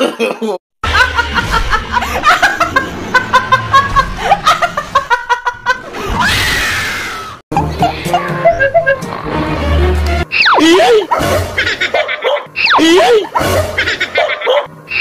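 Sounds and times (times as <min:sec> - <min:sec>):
woman laughing: 0:07.6 - 0:09.2, 0:10.6 - 0:14.7.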